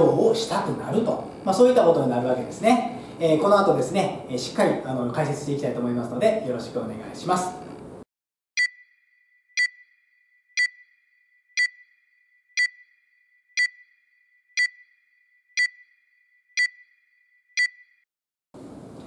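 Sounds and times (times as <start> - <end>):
high electronic pings: 8.6 - 18.1.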